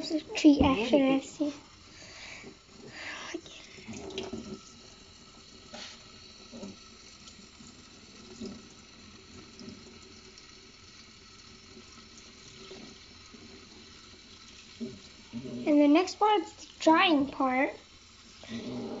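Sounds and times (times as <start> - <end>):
faucet spray into sink: 5.6 - 7.3.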